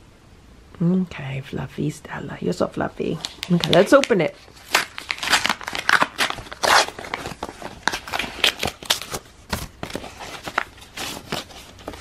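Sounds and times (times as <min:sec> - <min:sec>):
paper envelope tearing: 0:03.2 - 0:12.0.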